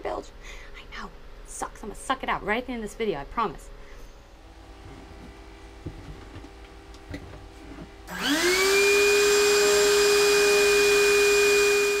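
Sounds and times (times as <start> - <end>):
vacuum cleaner motor whine: 4.2 - 12.0.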